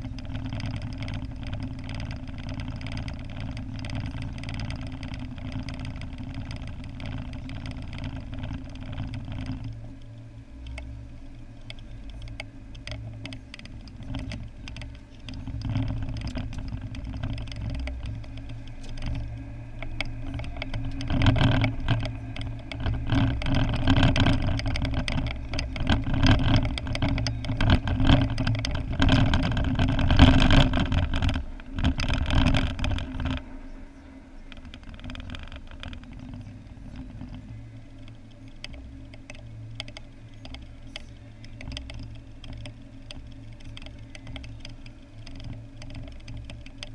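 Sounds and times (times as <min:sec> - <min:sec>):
small knocks and bumps: 0:00.0 - 0:33.6
car engine: 0:00.0 - 0:46.9
road noise: 0:00.0 - 0:46.9.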